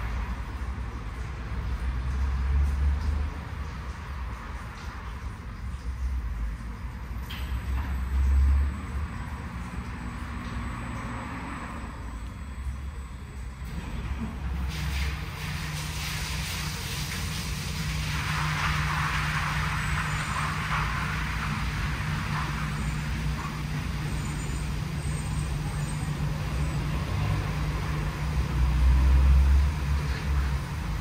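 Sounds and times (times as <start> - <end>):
car wash mechanical hum: 0.0 - 31.0
hiss: 14.7 - 23.5.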